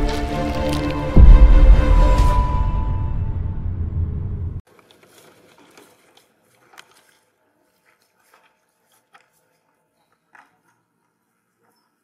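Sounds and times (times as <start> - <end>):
footsteps crunching through grass: 0.0 - 2.0, 4.8 - 10.6.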